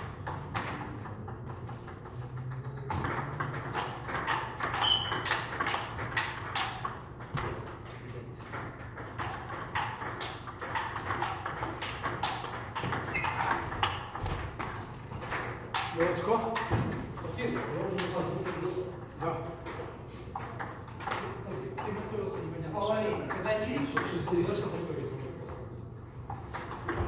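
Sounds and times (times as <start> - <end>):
table tennis ball clicking: 0.2 - 7.8, 8.4 - 18.8.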